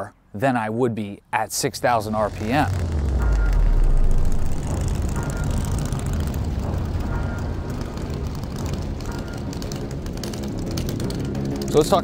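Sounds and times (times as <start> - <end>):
motorcycle exhaust rumbling: 2.0 - 12.0.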